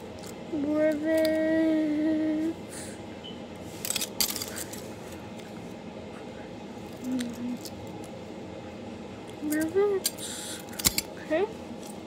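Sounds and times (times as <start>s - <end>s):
low voice hum: 0.4s - 3.2s, 4.5s - 7.9s.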